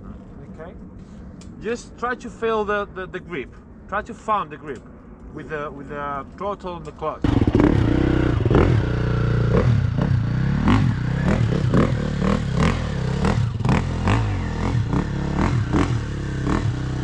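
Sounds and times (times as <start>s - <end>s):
dirt bike engines idling: 6.9s - 17.0s
engine revving: 7.2s - 17.0s.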